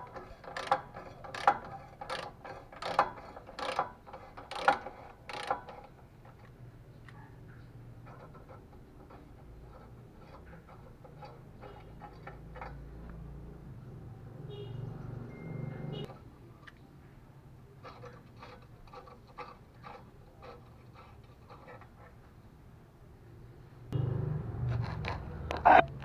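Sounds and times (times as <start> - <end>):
ratchet wrench clicking: 0.3 - 5.8.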